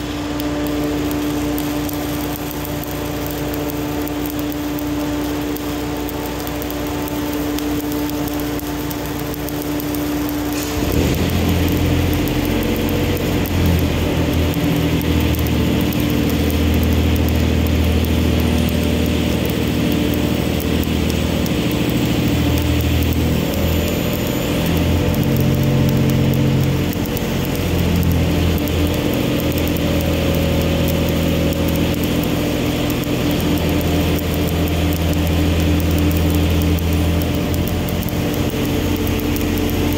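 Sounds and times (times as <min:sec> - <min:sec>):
steady machine hum: 0:00.0 - 0:39.9
welding arc crackling and hissing: 0:00.0 - 0:39.9.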